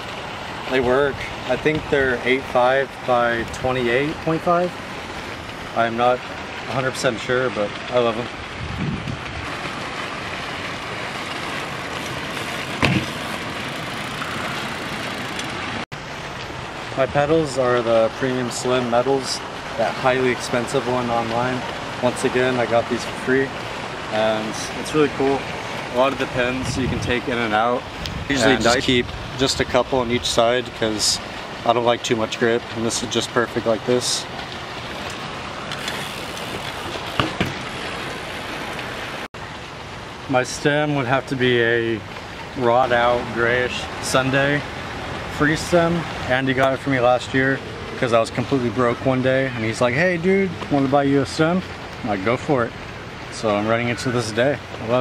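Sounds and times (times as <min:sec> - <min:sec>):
bike tyres rushing on concrete: 0:00.0 - 0:39.3
fountains splashing: 0:00.0 - 0:55.0
distant road traffic: 0:09.4 - 0:55.0
bike hitting the ground: 0:12.4 - 0:15.6, 0:35.7 - 0:37.9.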